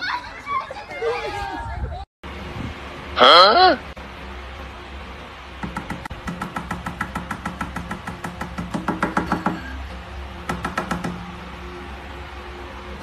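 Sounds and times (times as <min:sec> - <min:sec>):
rapid tapping on glass: 0:05.6 - 0:09.6.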